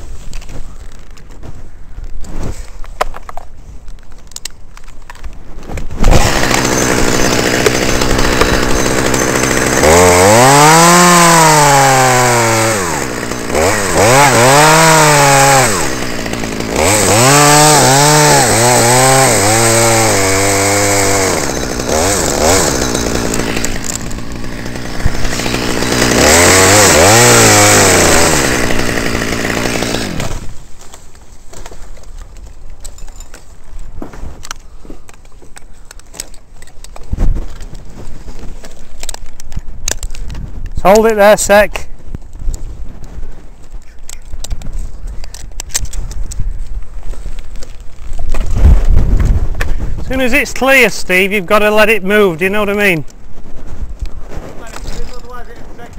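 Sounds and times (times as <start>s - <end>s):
chainsaw cutting wood: 5.8s - 33.4s, 34.0s - 41.6s.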